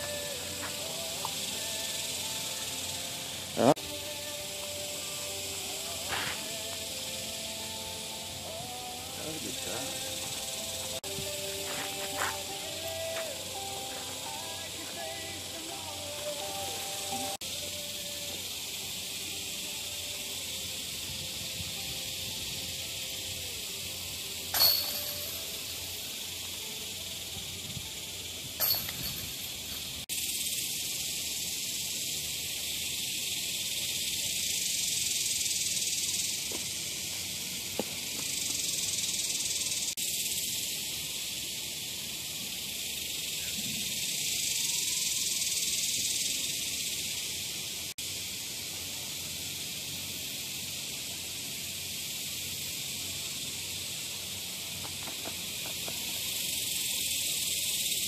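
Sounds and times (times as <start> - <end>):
cicada chorus buzzing: 0.0 - 58.0.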